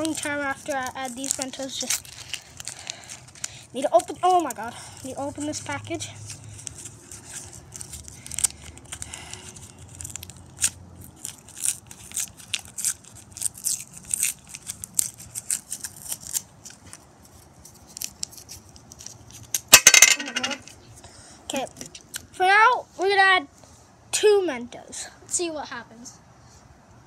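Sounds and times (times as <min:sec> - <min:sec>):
wrapper crinkling and tearing: 0:00.0 - 0:19.8.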